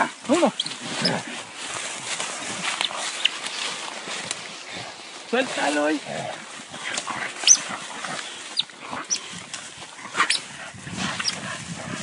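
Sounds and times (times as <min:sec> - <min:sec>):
scuffling in rustling leaves: 0:00.0 - 0:12.0
animal squealing yelps: 0:07.4 - 0:07.7.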